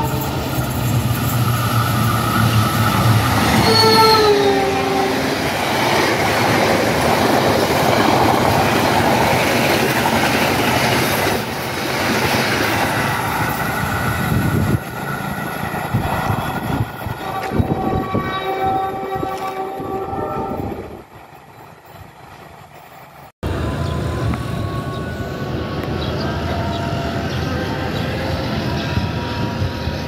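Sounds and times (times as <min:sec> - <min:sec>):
train wheels on rails: 0:00.0 - 0:30.0
train horn: 0:01.9 - 0:05.6, 0:17.0 - 0:21.0, 0:23.4 - 0:30.0.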